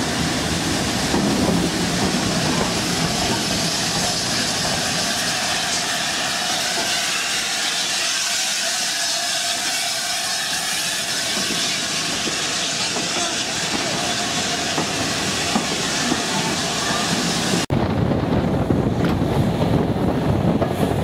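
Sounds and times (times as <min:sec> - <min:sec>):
steam hissing: 0:00.0 - 0:17.7
train coaches passing: 0:00.0 - 0:17.7
train wheels rolling on rails: 0:00.0 - 0:21.0.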